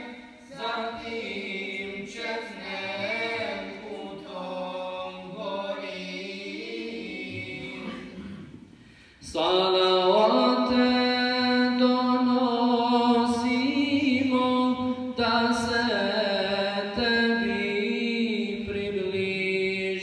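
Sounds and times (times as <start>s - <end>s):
man chanting melismatic recitation: 9.2s - 20.0s.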